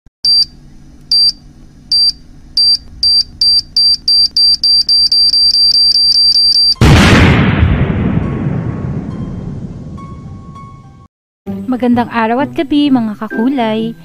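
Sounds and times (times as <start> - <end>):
high electronic beeps: 1.1 - 6.8.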